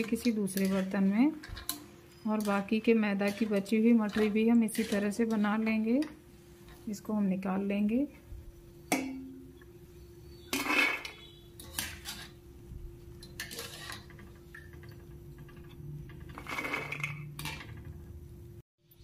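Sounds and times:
skimmer scraping a metal wok: 0:00.0 - 0:07.0, 0:10.4 - 0:17.9.

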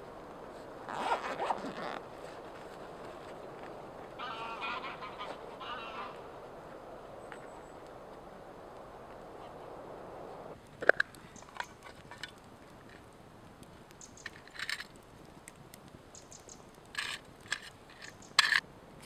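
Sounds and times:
soft steady hiss: 0:00.0 - 0:19.0
wool rustling: 0:00.5 - 0:04.2.

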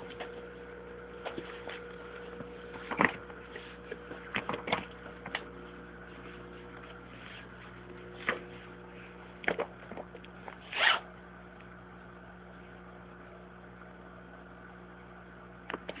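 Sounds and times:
steady low hum: 0:00.0 - 0:16.0
handling noise scrapes: 0:10.6 - 0:11.0.

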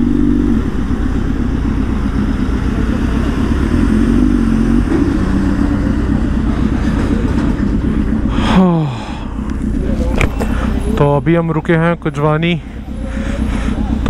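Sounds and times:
motorcycle engines idling: 0:00.0 - 0:14.0.

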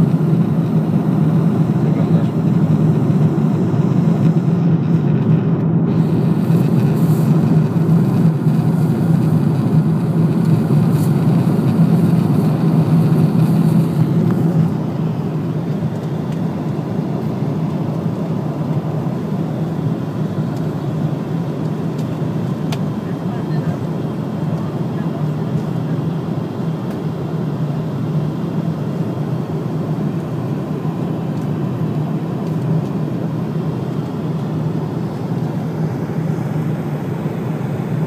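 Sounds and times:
low hum: 0:00.0 - 0:18.7
airliner cabin engine drone: 0:00.0 - 0:38.0.

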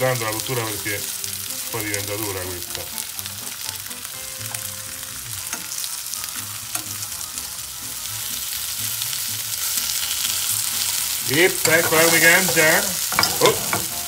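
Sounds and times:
fish fillets sizzling in pan: 0:00.0 - 0:14.0
metal tongs clicking on pan: 0:05.5 - 0:05.8, 0:06.7 - 0:07.0, 0:11.4 - 0:14.0.

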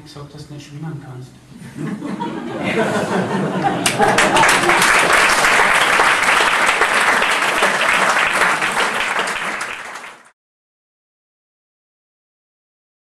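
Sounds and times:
audience applauding: 0:02.7 - 0:10.4.

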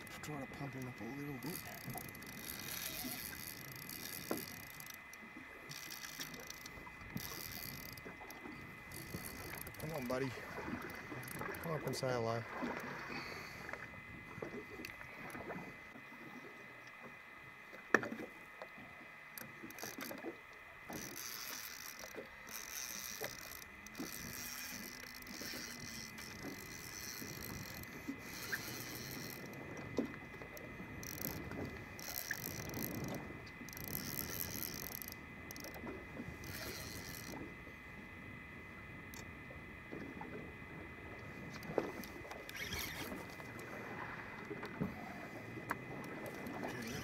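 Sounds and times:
fishing reel cranking: 0:00.0 - 0:13.8, 0:19.3 - 0:20.3, 0:20.9 - 0:37.5, 0:41.5 - 0:43.8, 0:45.9 - 0:47.0
water slapping boat hull: 0:00.0 - 0:47.0.

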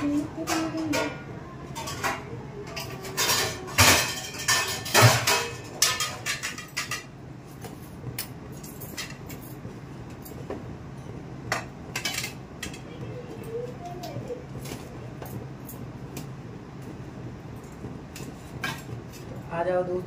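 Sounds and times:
dishes and cutlery clattering: 0:00.0 - 0:09.5, 0:11.5 - 0:12.9, 0:18.2 - 0:19.3
steady low hum: 0:00.0 - 0:20.0.

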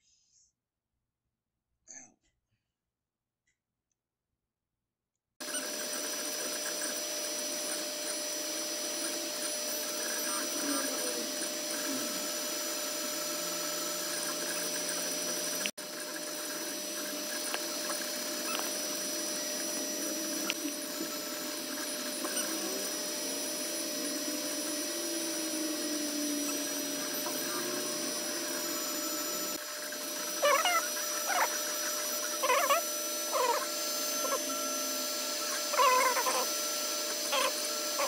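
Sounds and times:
cooling fans whirring: 0:05.4 - 0:38.0
stepper motors whining: 0:05.4 - 0:38.0
high wavering chirping squeaks: 0:21.2 - 0:22.9, 0:26.5 - 0:34.7, 0:35.3 - 0:36.6, 0:37.2 - 0:38.0.

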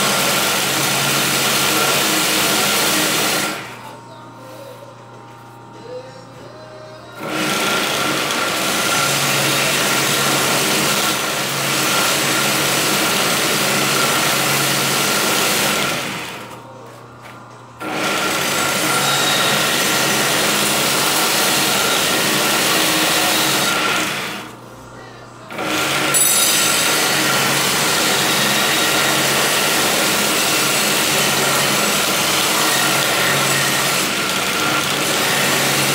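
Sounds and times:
belt sander grinding knife blade: 0:26.1 - 0:29.1.

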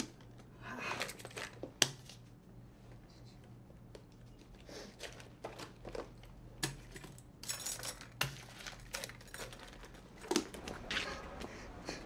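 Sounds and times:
small hard objects clinking: 0:06.7 - 0:10.6.

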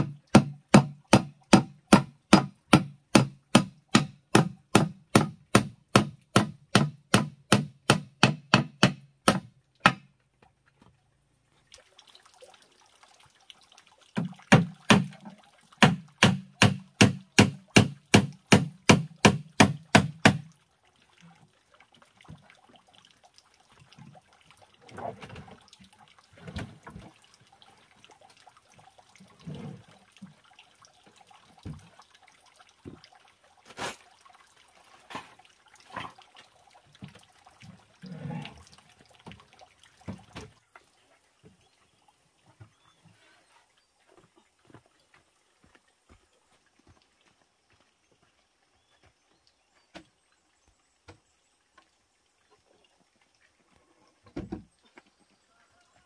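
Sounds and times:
hammer nailing wood: 0:00.0 - 0:10.1, 0:14.5 - 0:15.1, 0:15.8 - 0:20.5.

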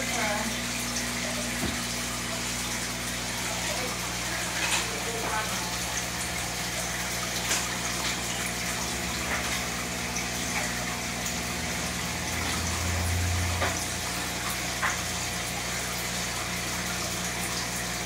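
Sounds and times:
bubbling water: 0:00.0 - 0:18.0
low electrical hum: 0:00.0 - 0:18.0.

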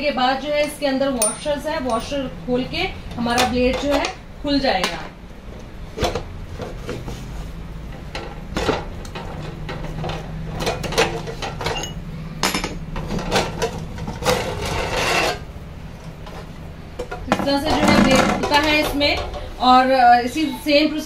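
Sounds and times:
metallic clinks and knocks: 0:00.6 - 0:02.3.

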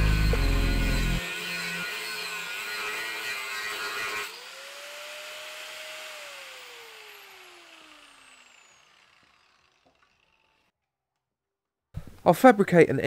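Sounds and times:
angle grinder cutting steel: 0:00.0 - 0:10.7.

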